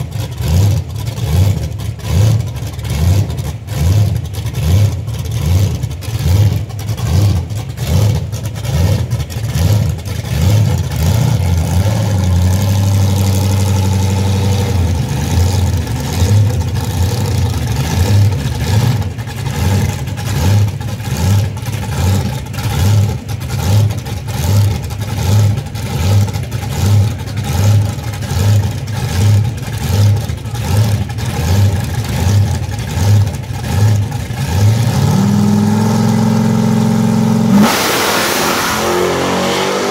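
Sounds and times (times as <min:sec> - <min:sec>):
drag car engine idling: 0:00.0 - 0:39.9.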